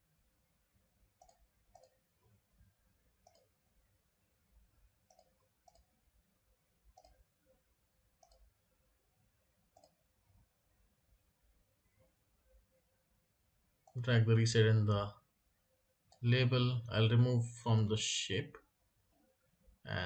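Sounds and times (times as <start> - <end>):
computer mouse clicks: 1.2 - 2.1, 3.2 - 3.6, 5.0 - 6.0, 6.9 - 7.3, 8.2 - 8.6, 9.7 - 10.0.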